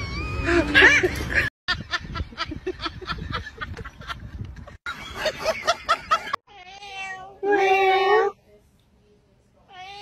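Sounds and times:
cat meowing: 6.5s - 7.7s, 9.7s - 10.0s.

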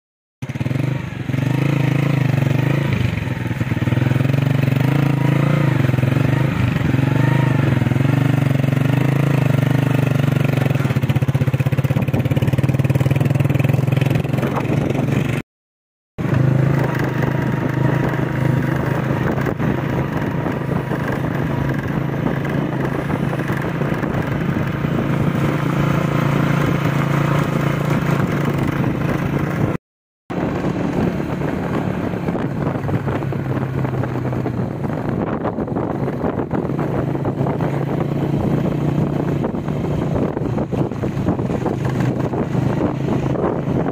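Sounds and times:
motorcycle engine droning: 0.4s - 15.4s, 16.2s - 43.9s.

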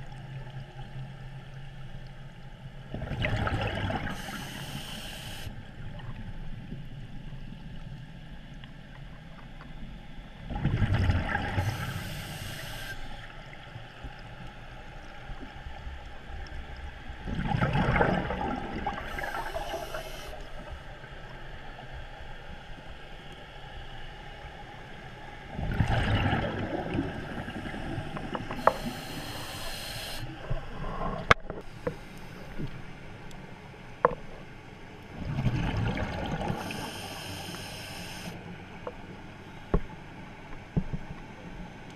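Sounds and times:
low steady rumble: 0.0s - 41.9s
exhaled bubbles underwater: 2.9s - 6.3s, 10.4s - 14.3s, 17.2s - 20.8s, 25.5s - 31.7s, 35.1s - 38.4s
regulator hiss: 4.0s - 5.6s, 11.6s - 13.3s, 19.1s - 20.7s, 28.5s - 30.6s, 36.5s - 38.4s.

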